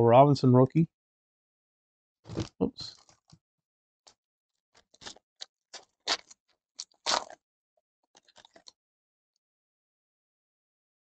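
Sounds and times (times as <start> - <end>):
foil wrapper tearing and crinkling: 5.8 - 7.4.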